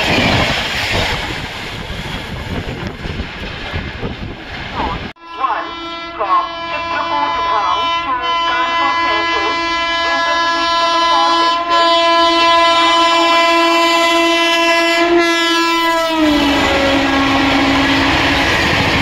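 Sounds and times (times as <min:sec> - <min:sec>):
train coaches rushing by: 0:00.0 - 0:11.9, 0:16.1 - 0:19.0
train horn blast: 0:05.2 - 0:18.5.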